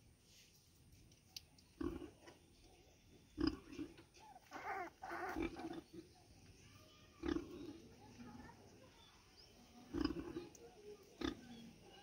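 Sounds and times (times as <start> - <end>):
sow grunting: 3.4 - 6.0, 9.9 - 10.5
high-pitched voice-like calls: 4.2 - 5.6.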